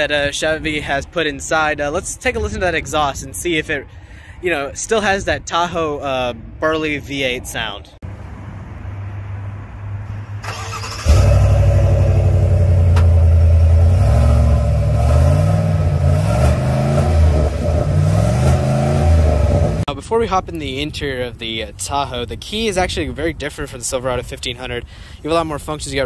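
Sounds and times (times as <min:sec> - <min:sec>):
engine exhaust revving: 0:10.1 - 0:19.9.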